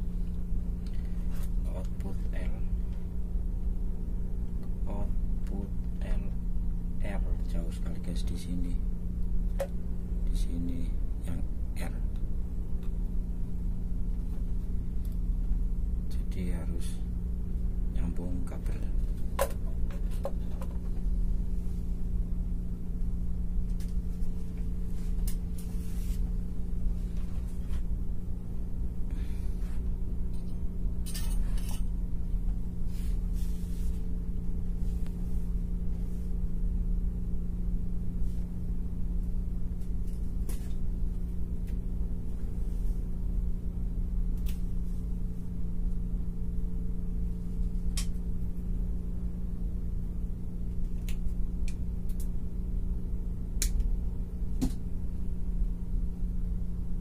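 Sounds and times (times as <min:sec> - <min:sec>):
steady low hum: 0:00.0 - 0:57.0
light clicks and rustles of wires: 0:23.6 - 0:26.3, 0:39.2 - 0:41.8, 0:44.3 - 0:44.8, 0:50.7 - 0:52.4.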